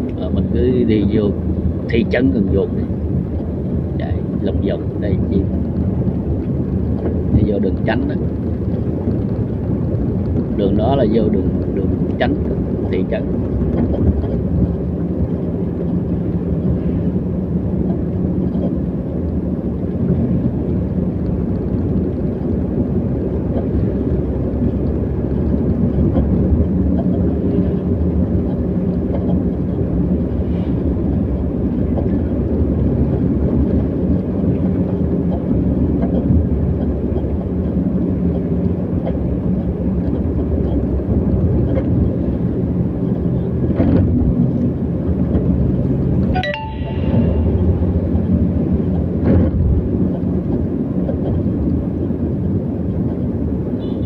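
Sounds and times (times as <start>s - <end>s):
vehicle engine hum: 0.0s - 54.0s
wind and road noise: 0.0s - 54.0s.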